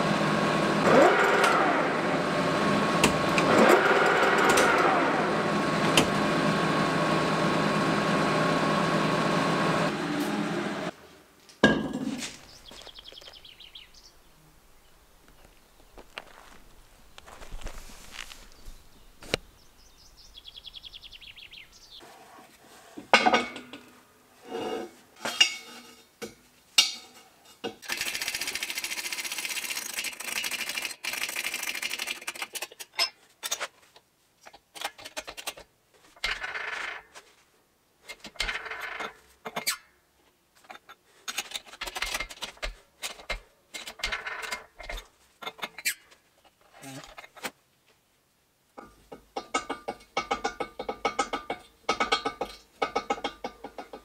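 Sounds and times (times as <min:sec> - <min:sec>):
steel parts clanking: 0:25.2 - 0:28.2.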